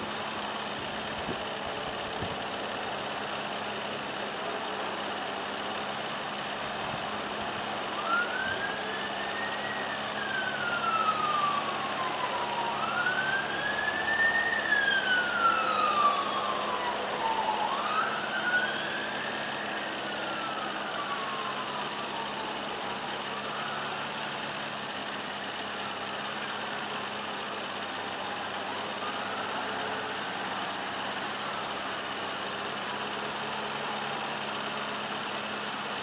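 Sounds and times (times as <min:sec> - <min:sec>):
engine idling: 0:00.0 - 0:36.0
siren wailing: 0:07.2 - 0:34.8.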